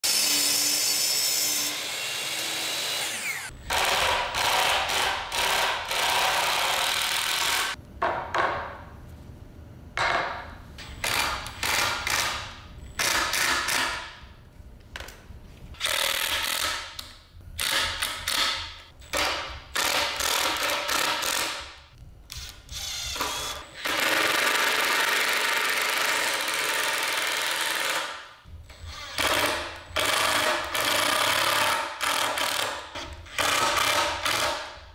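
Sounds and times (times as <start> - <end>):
miter saw blade winding down: 2.9 - 3.5
cordless drill driving screws: 22.3 - 28.0.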